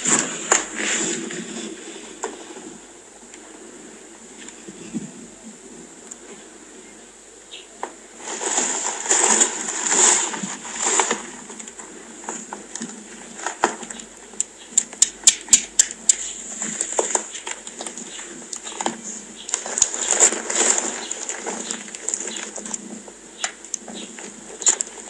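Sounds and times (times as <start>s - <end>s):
rustling and handling noises: 0.0s - 7.0s, 7.8s - 25.0s
rapid sharp light clicks: 14.4s - 16.3s.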